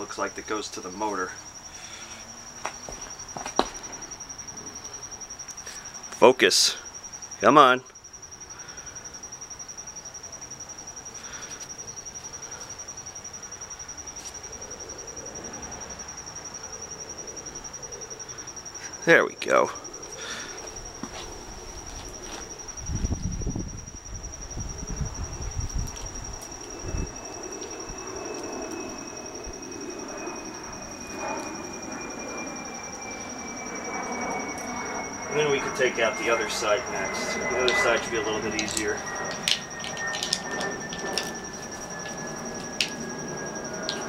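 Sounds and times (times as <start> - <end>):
crickets chirping: 0.0 - 44.0
high insect trill: 0.0 - 44.0
small metal parts clicking: 38.6 - 41.4.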